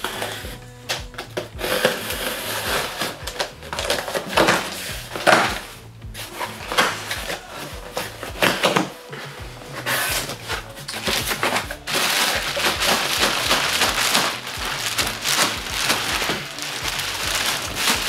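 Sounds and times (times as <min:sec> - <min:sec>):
background music: 0:00.0 - 0:18.0
packaging scraping: 0:01.6 - 0:18.0
packaging rustling: 0:09.8 - 0:18.0
packaging tearing: 0:10.9 - 0:18.0.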